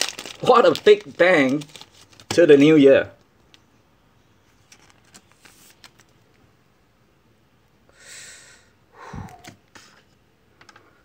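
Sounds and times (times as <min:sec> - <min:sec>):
plastic sleeve handling: 0:00.0 - 0:03.6, 0:04.6 - 0:06.4
short breaths near microphone: 0:07.9 - 0:09.6.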